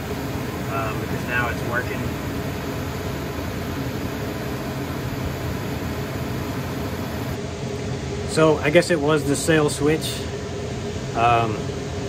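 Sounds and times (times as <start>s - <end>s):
low hum: 0.0s - 7.4s
furnace blower rushing air: 0.0s - 12.0s.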